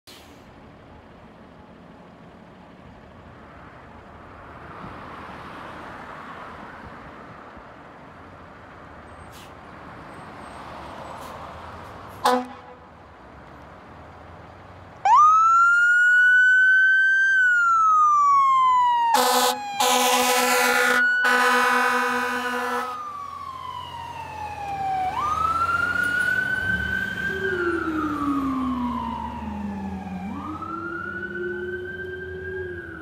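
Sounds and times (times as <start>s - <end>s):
diesel engine rumble: 0.1s - 33.0s
air horn blast: 12.2s - 12.9s, 19.2s - 23.0s
siren wailing: 15.0s - 33.0s.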